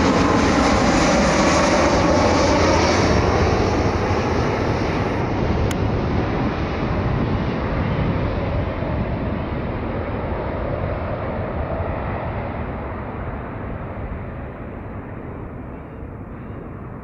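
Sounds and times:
jet engine rush: 0:00.0 - 0:17.0.

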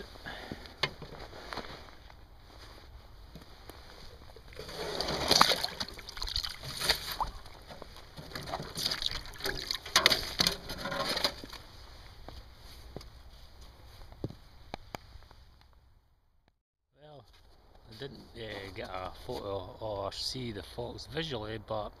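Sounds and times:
water splashing and sloshing: 0:03.8 - 0:11.6.

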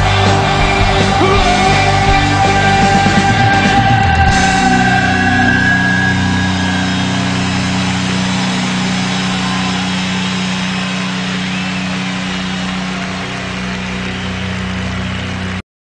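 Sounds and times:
crowd noise: 0:00.0 - 0:15.6
rock band drumming: 0:00.0 - 0:15.6
amplified guitar chord ringing: 0:04.3 - 0:14.9.

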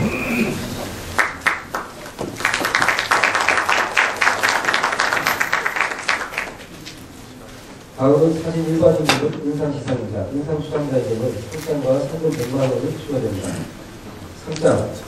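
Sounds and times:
audience applauding: 0:01.1 - 0:06.8.

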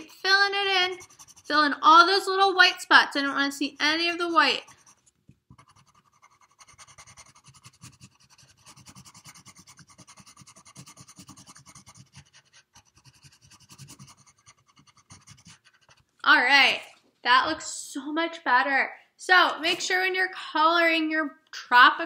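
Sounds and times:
pencil scratching on paper: 0:00.0 - 0:02.2, 0:03.2 - 0:16.2.

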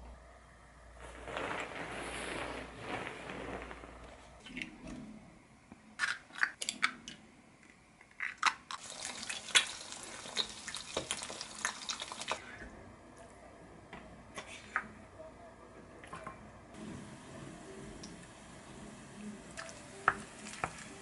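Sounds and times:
eggs sizzling in oil: 0:08.7 - 0:12.4, 0:16.8 - 0:21.0.

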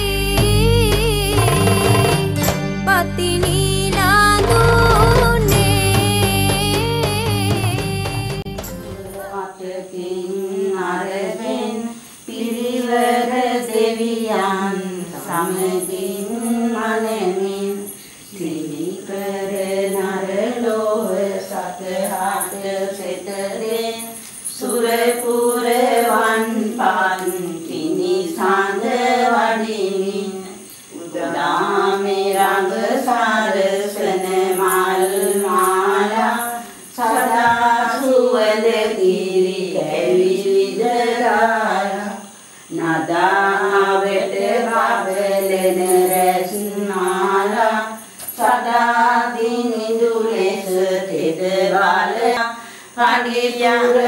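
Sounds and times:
person singing a slow chant: 0:00.0 - 0:54.0.

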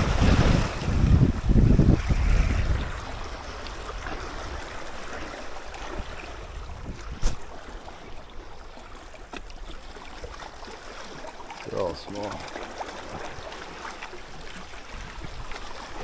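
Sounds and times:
wind buffeting microphone: 0:00.0 - 0:08.1, 0:14.8 - 0:16.0
light wind: 0:00.0 - 0:16.0
seawater lapping: 0:00.0 - 0:16.0.

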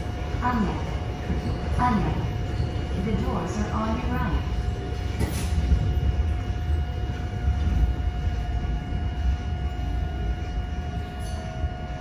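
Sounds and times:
train running gear rumble: 0:00.0 - 0:12.0.

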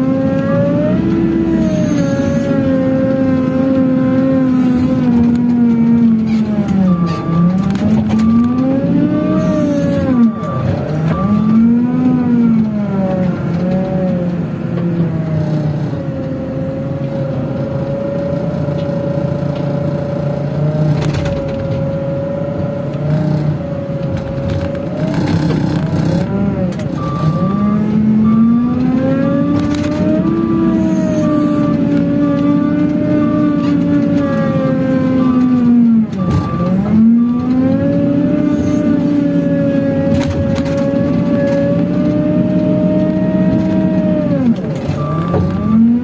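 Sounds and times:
diesel engine revving: 0:00.0 - 0:46.0
beeping alarm: 0:00.5 - 0:02.7, 0:04.4 - 0:13.0, 0:25.0 - 0:41.8, 0:44.9 - 0:46.0.

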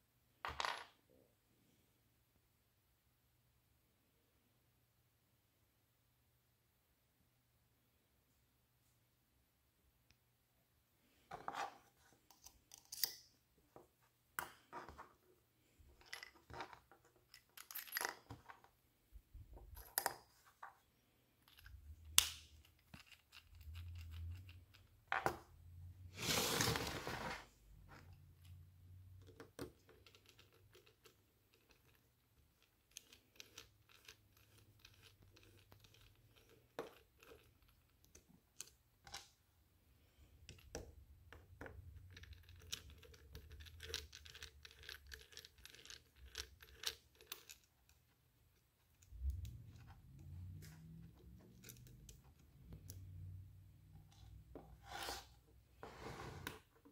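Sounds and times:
screwdriver turning tiny screws: 0:12.3 - 0:13.3
scraping rustle: 0:26.1 - 0:27.5.

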